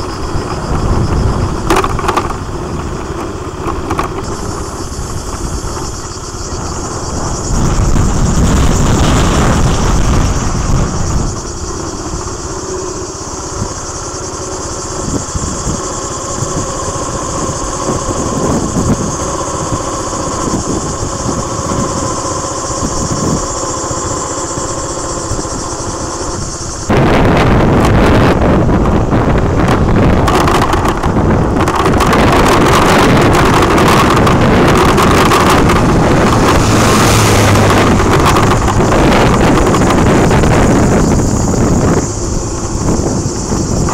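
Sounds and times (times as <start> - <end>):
fire truck diesel engine: 0.0 - 43.9
wind rumbling on microphone: 0.0 - 43.9
high-pitched drone: 4.2 - 27.0, 32.4 - 43.9.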